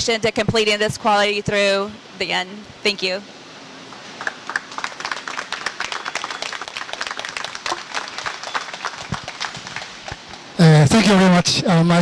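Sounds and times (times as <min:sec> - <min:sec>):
people applauding: 0:04.2 - 0:10.5.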